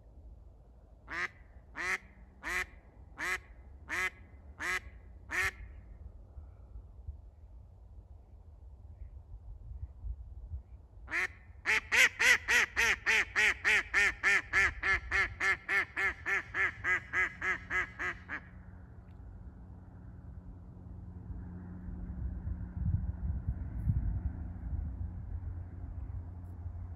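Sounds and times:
duck quacking: 11.1 - 18.5.

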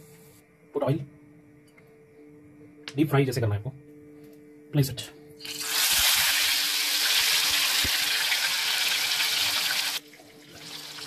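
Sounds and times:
chicken sizzling in hot oil: 5.4 - 11.0.

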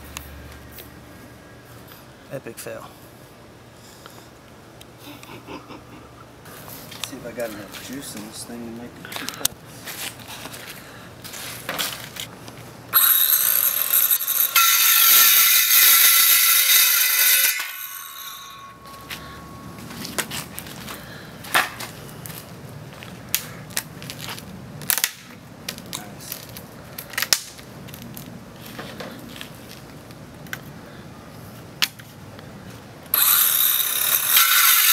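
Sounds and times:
circular saw cutting pipe: 13.0 - 19.6, 33.1 - 34.9.

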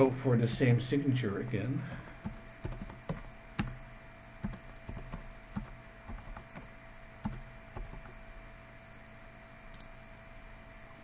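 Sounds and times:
keyboard keystrokes: 1.9 - 3.8, 4.4 - 8.2.

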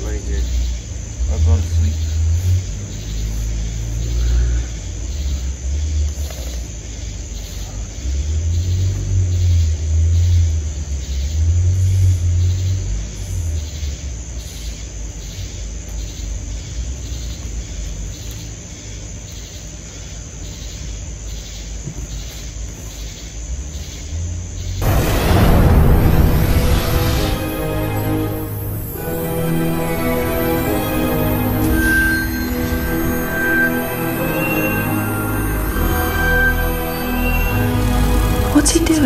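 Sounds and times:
low outdoor rumble: 24.2 - 34.3.

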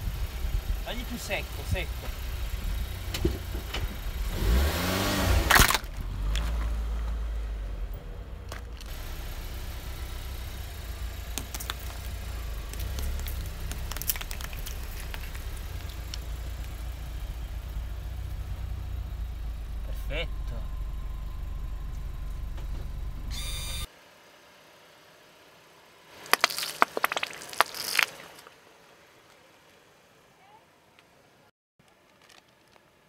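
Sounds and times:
car engine revving: 0.0 - 23.9
car engine rumbling: 0.0 - 31.4
tyre crushing tomatoes: 5.4 - 6.8, 11.3 - 16.8, 26.2 - 28.5.

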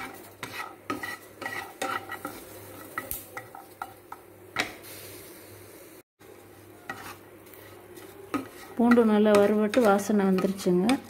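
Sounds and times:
wooden spatula scraping frying pan: 0.0 - 4.8, 6.3 - 11.0
garlic hissing in pan: 4.6 - 6.0.

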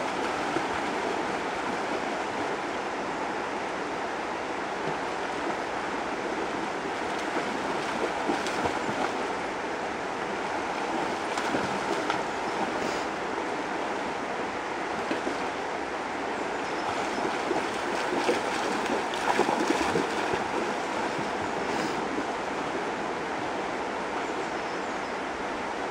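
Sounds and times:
river rushing over stones: 0.0 - 24.6
dog splashing through water: 17.1 - 22.0.

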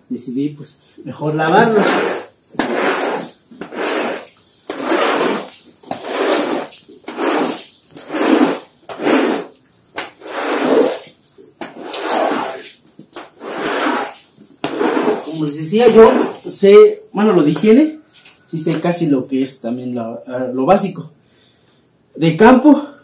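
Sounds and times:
squeegee pushing water on concrete: 1.4 - 16.6.

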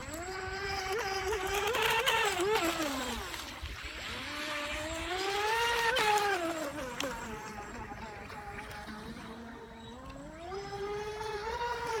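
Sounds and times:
electric boat motor whining: 0.0 - 12.0.

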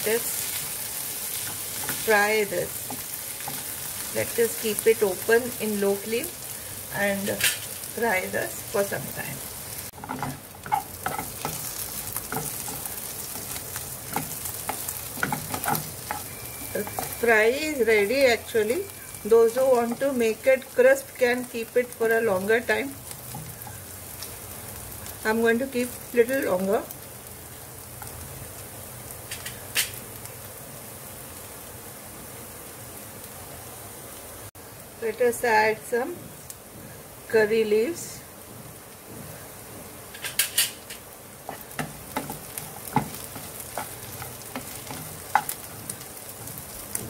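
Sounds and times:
vegetables sizzling in oil: 0.0 - 47.0
spatula scraping a pan: 10.0 - 17.3, 41.5 - 47.0.

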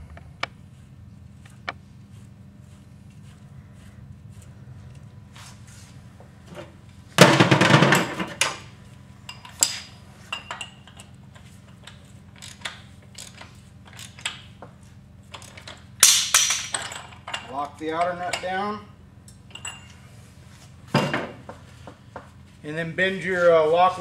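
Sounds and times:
steady low hum: 0.0 - 24.0
metal tools rattling clatter: 15.4 - 18.7.

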